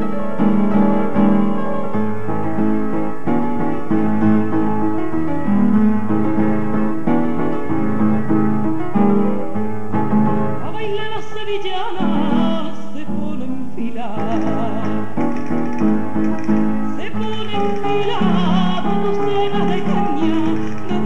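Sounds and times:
person singing ornamented lines: 10.6 - 15.2, 16.9 - 21.0.

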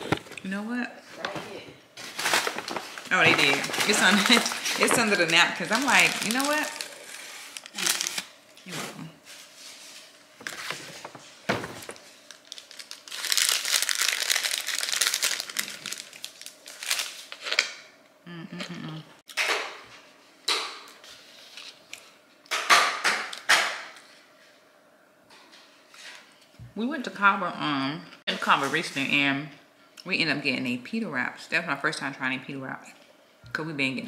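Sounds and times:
food packaging crinkling: 2.0 - 8.6, 9.3 - 17.9.

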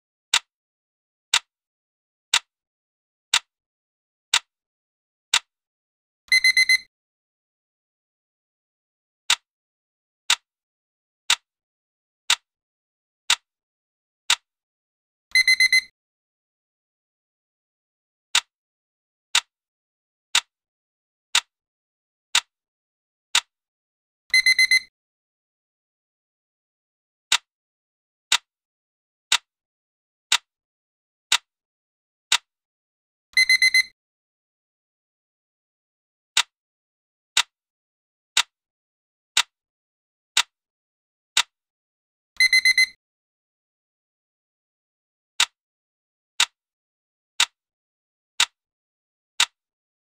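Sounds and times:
countdown timer ticks: 6.3 - 6.9, 15.3 - 15.9, 24.3 - 24.9, 33.4 - 33.9, 42.4 - 43.0
high electronic ringing beep: 33.4 - 33.9, 42.4 - 43.0.

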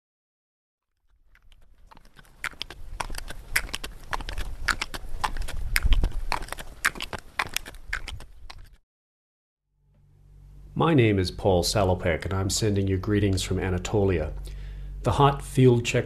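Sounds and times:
hooves clopping on stone: 1.4 - 8.8.

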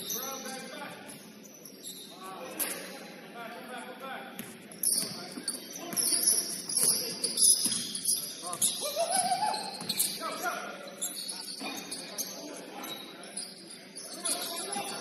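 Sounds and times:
basketball shoes squeaking: 4.4 - 15.0.

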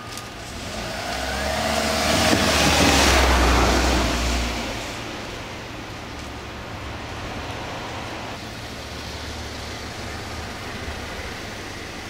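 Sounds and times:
small car driving past: 0.4 - 5.0.

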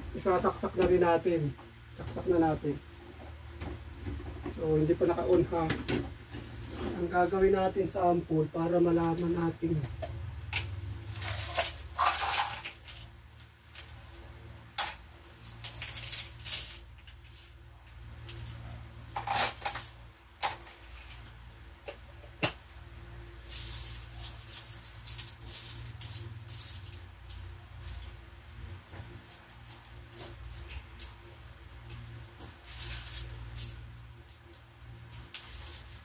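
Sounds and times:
low steady hum: 0.0 - 36.0
coins clinking and rattling: 11.0 - 13.9, 14.8 - 17.2, 18.2 - 21.2, 23.4 - 31.2, 31.9 - 33.9, 35.0 - 36.0.

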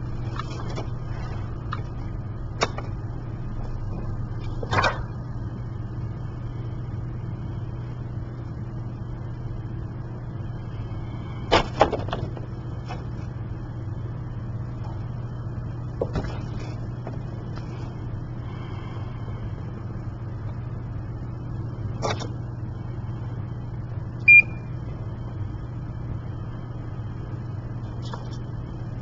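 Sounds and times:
steady low hum: 0.0 - 29.0
high-pitched pump beep: 24.2 - 24.7.

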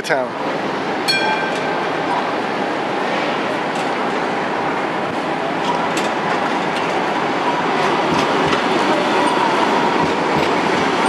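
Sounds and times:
tram wheels rumbling: 0.0 - 11.0
thin steady whine: 0.7 - 5.6.

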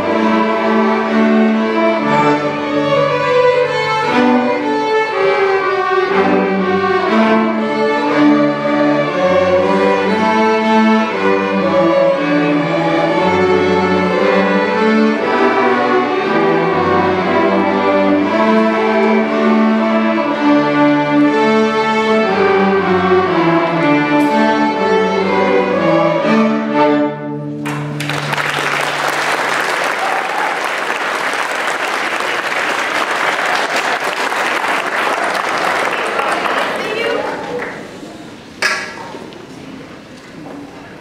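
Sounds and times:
string orchestra playing: 0.0 - 37.2
audience applause: 27.6 - 37.9.

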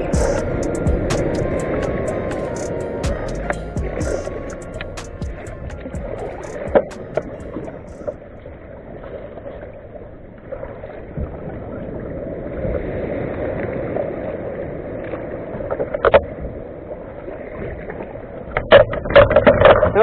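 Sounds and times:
water splashing around kayak: 4.8 - 20.0.

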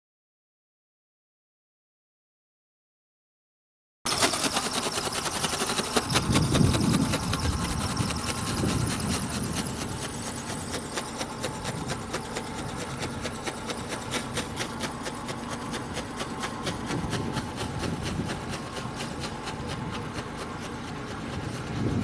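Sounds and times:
rapid even ticking: 4.1 - 20.9
wind rumbling on microphone: 6.1 - 10.8, 16.6 - 18.9, 21.0 - 22.0.

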